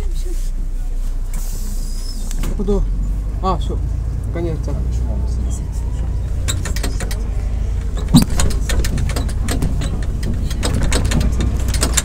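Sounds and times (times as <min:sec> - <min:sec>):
low street rumble: 0:00.0 - 0:12.0
light clicks and knocks: 0:06.3 - 0:12.0
sharp thump: 0:08.0 - 0:09.8.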